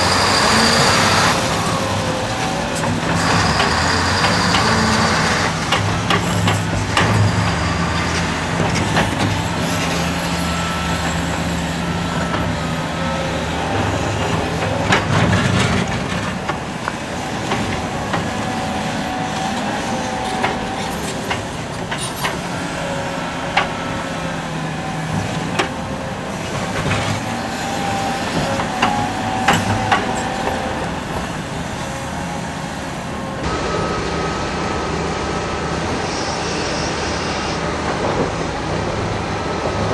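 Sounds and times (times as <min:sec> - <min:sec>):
excavator diesel engine: 0:00.0 - 0:39.9
steady high whine: 0:33.1 - 0:38.4.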